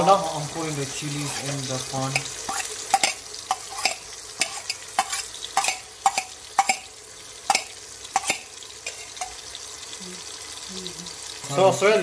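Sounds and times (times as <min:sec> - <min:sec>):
food sizzling in oil: 0:00.0 - 0:12.0
metal spoon clinking against pot: 0:02.1 - 0:06.9, 0:07.5 - 0:09.4.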